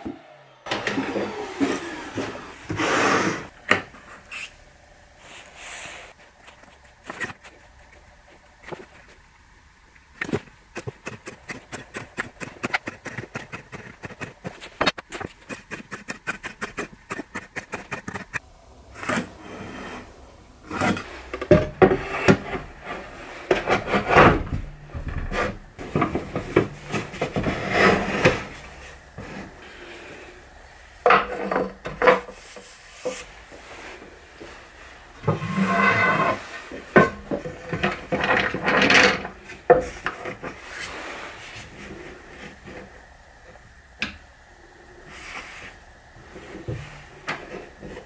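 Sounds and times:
wood and tools knocking: 20.8s - 29.5s, 31.0s - 33.2s, 35.2s - 40.6s.

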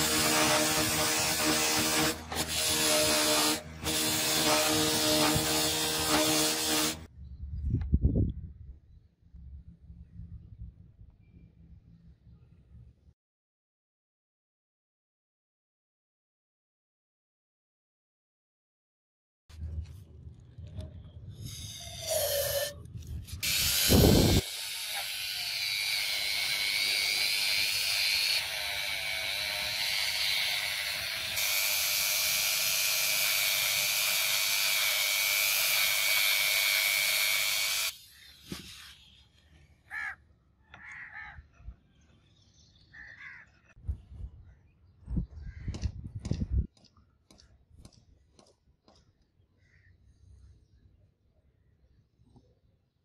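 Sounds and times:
rotary tool whining: 0.0s - 7.1s, 21.4s - 39.0s.

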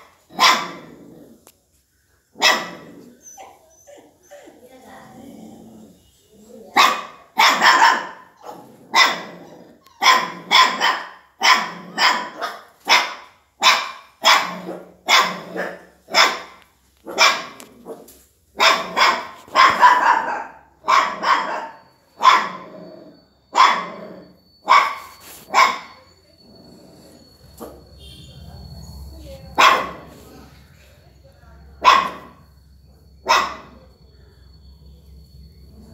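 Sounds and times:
dog barking: 0.0s - 1.0s, 2.4s - 3.6s, 6.7s - 22.7s, 23.5s - 26.1s, 29.5s - 30.3s, 31.8s - 32.4s, 33.2s - 34.0s.

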